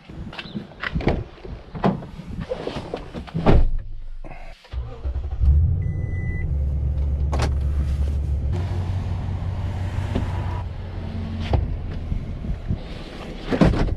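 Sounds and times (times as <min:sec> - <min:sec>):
pickup engine starting and idling: 0:04.7 - 0:10.4.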